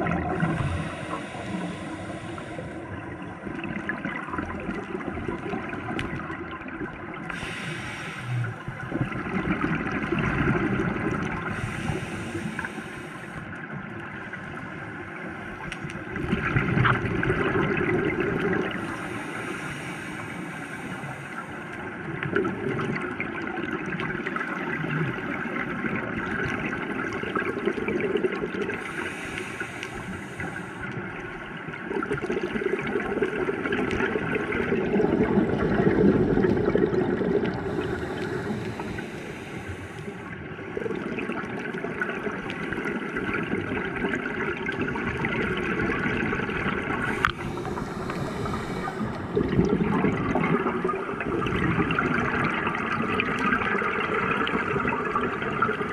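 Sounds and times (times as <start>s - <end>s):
gurgling exhaust bubbles: 0.0s - 1.8s, 3.0s - 12.7s, 16.1s - 18.9s, 31.8s - 38.9s, 40.7s - 55.9s
scuba regulator breathing underwater: 0.0s - 3.3s, 7.3s - 8.8s, 11.0s - 13.6s, 18.5s - 21.8s, 28.6s - 31.0s, 34.6s - 41.1s, 46.7s - 51.6s.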